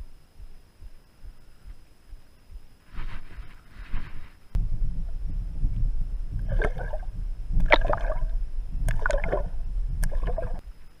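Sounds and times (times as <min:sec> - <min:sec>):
low underwater rumble: 0:04.6 - 0:10.9
cork popping and splashing underwater: 0:06.4 - 0:10.6.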